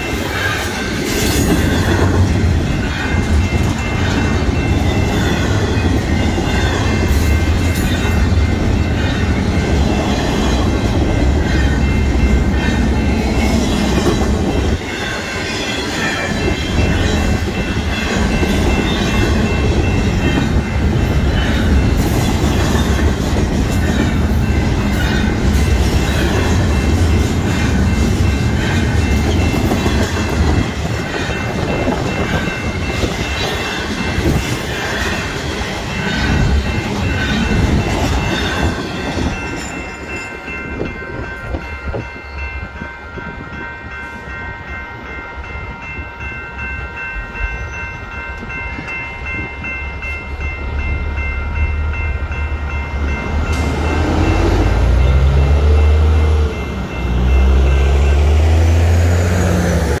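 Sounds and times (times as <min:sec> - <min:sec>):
crossing bell ringing: 0:00.0 - 1:00.0
train cars rumbling and clattering: 0:00.0 - 1:00.0.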